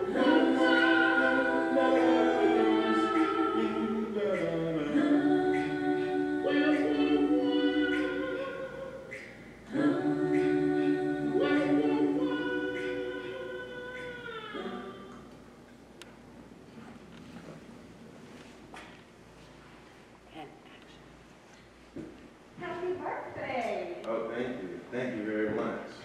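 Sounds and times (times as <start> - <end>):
a cappella harmony singing: 0.0 - 15.3.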